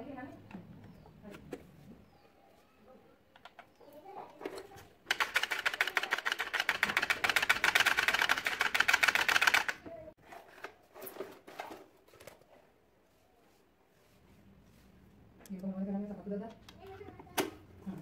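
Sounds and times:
rapid rattle of clicks: 5.1 - 9.8.

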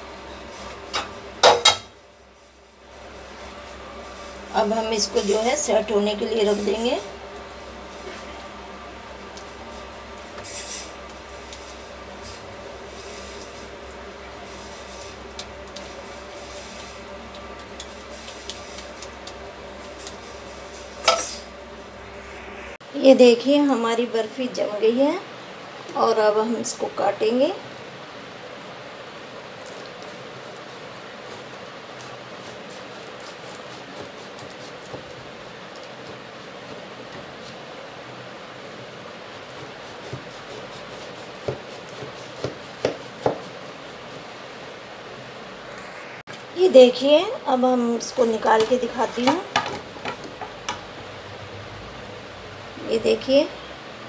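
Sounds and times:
steady background hum: 0.0 - 54.0
steady low hiss: 0.0 - 54.0
spatula scraping metal tray: 9.7 - 13.8, 14.4 - 21.5.

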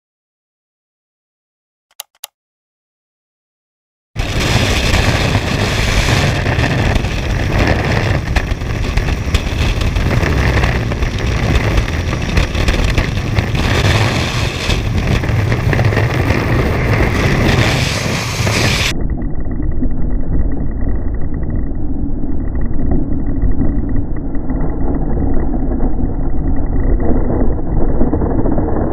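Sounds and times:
freefall wind rushing: 4.2 - 19.0.

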